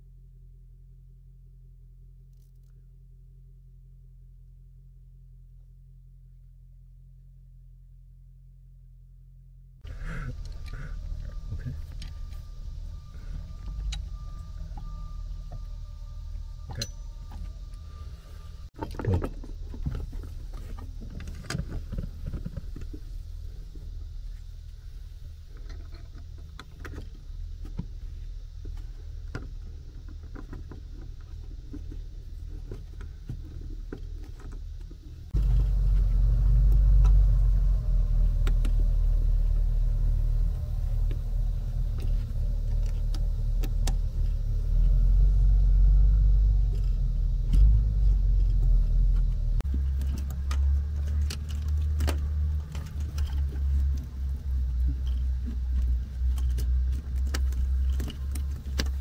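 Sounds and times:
low rumble: 0:00.0 - 0:59.0
cables clicking and rattling: 0:46.7 - 0:59.0.

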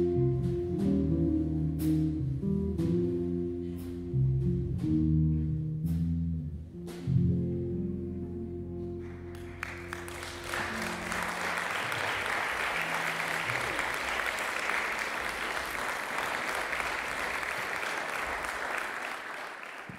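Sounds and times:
jazz combo held chord: 0:00.0 - 0:14.1
audience applause: 0:09.0 - 0:19.9.

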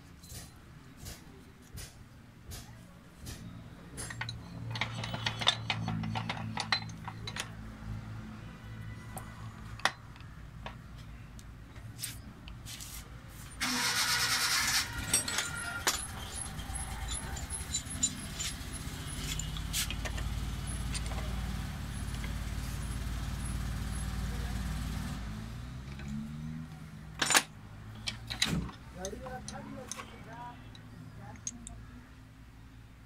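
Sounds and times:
metal clicks and clinks: 0:04.0 - 0:07.6, 0:09.1 - 0:10.8, 0:14.8 - 0:22.4, 0:25.8 - 0:31.9.

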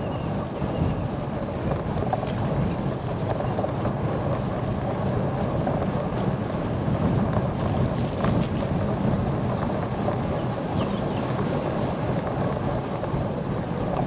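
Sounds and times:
bicycle tyres rolling on tarmac: 0:00.0 - 0:14.0
wind buffeting microphone: 0:00.0 - 0:14.0.

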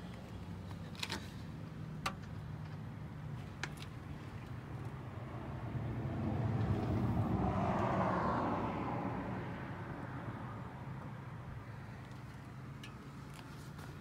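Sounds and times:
vehicle passing by: 0:05.0 - 0:10.8.

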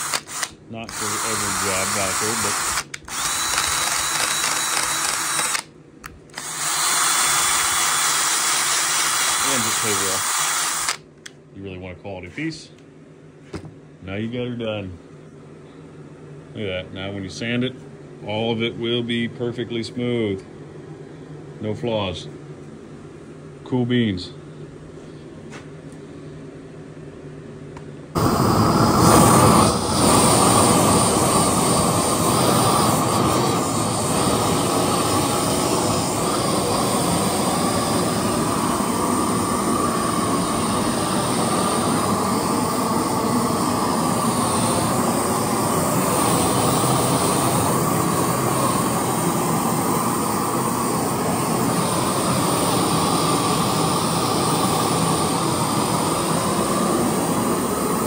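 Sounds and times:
gas torch flame rushing: 0:00.0 - 0:05.7, 0:06.3 - 0:11.1, 0:28.2 - 0:58.0.

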